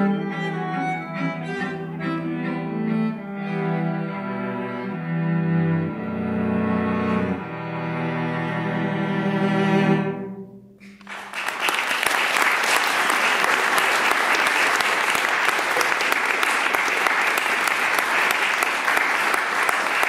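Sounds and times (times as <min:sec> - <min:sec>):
cellos holding a chord: 0:00.0 - 0:11.2
audience applause: 0:10.8 - 0:20.0.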